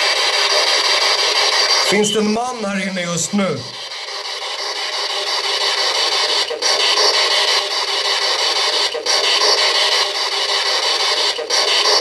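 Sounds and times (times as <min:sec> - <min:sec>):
radio static hiss: 0:01.8 - 0:03.8.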